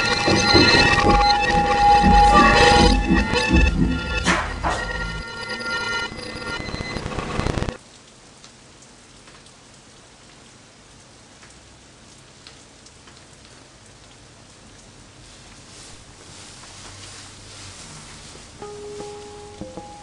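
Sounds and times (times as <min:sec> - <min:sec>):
heavy low rumble: 0:00.0 - 0:05.8, 0:15.9 - 0:18.7
horror film score: 0:00.0 - 0:07.8
faint steady hiss: 0:07.8 - 0:20.0.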